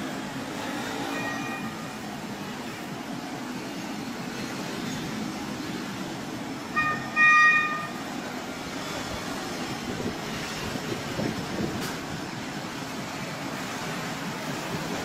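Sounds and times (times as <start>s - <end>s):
train rumbling: 0.0s - 15.0s
locomotive horn: 6.7s - 8.0s.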